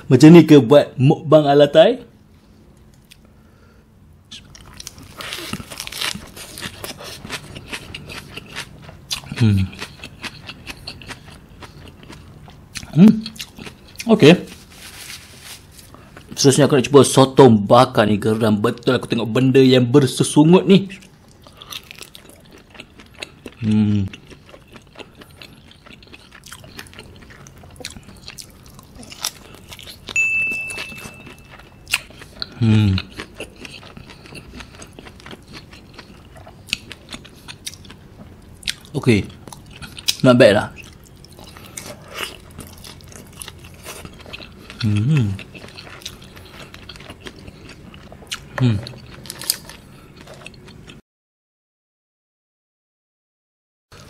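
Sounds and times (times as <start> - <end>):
wet crunching of lettuce: 4.5 - 12.3, 40.8 - 50.6
loud high beep: 30.2 - 31.5.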